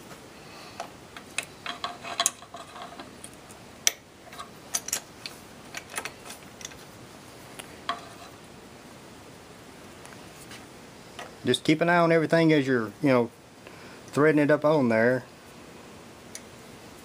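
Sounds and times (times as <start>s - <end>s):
metal clicks and clinks: 3.9s - 5.1s.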